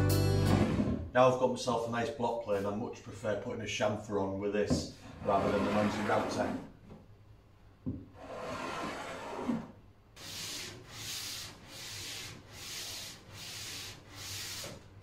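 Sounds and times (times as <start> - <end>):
block plane rasping on wood: 8.2 - 14.8.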